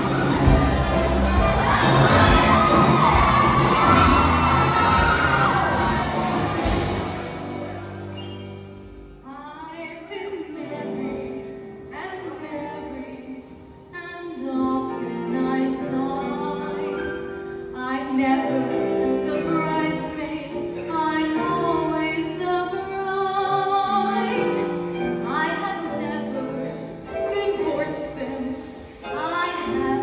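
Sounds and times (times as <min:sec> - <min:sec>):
live band with piano: 0:00.0 - 0:09.4, 0:10.2 - 0:30.0
woman singing into microphone: 0:09.2 - 0:30.0.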